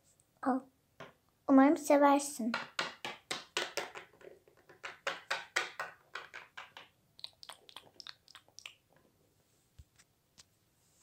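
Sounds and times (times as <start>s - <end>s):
plastic figurines tapping tabletop: 2.5s - 8.1s.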